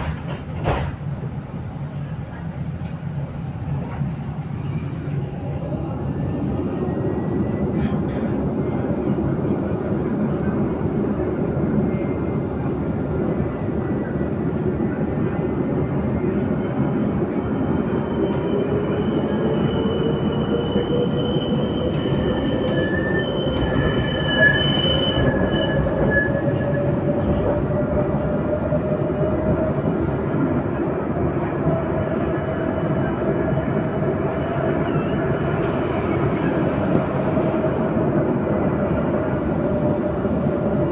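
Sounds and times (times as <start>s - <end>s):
tram wheels rumbling on track: 0.0s - 40.9s
high wheel squeal: 16.2s - 40.9s.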